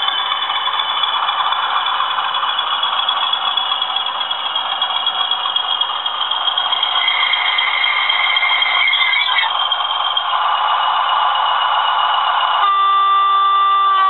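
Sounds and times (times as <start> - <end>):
thin high tone: 0.0 - 10.4
diesel engine sound through speakers: 0.0 - 14.0.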